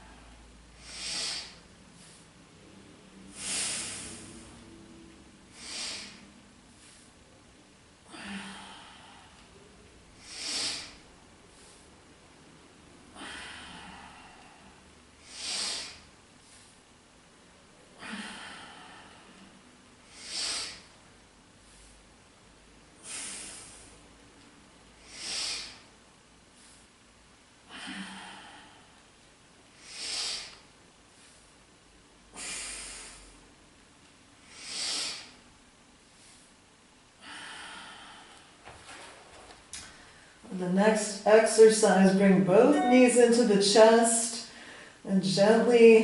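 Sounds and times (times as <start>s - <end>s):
woman breathing deeply through nose: 0.0s - 2.4s, 3.2s - 4.8s, 5.5s - 7.2s, 8.0s - 9.6s, 10.2s - 11.9s, 13.1s - 16.8s, 18.0s - 21.0s, 23.0s - 24.1s, 25.0s - 25.9s, 27.7s - 29.1s, 29.7s - 31.5s, 32.3s - 33.6s, 34.4s - 35.5s, 37.2s - 38.6s, 44.5s - 45.0s.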